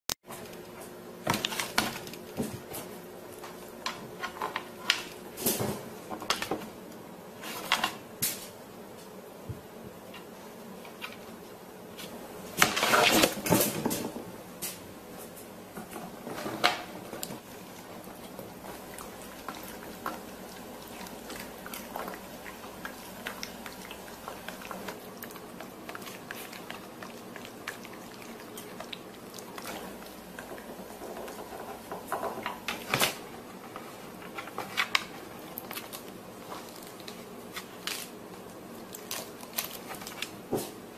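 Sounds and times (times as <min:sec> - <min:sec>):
dog crunching cabbage leaves: 0:17.3 - 0:31.9, 0:34.3 - 0:40.5.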